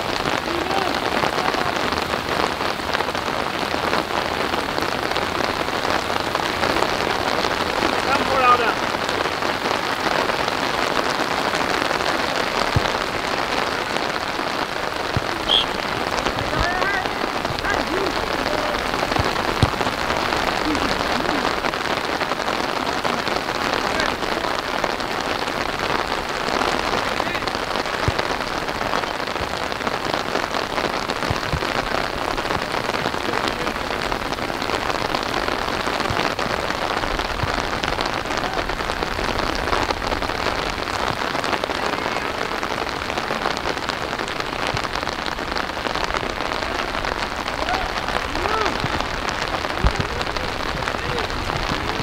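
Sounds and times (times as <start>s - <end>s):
steady rain: 0.0s - 52.0s
faint distant shouts: 15.2s - 21.5s.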